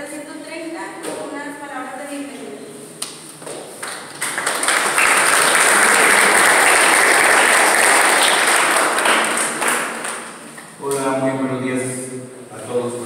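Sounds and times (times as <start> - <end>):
audience applauding: 3.4 - 10.7.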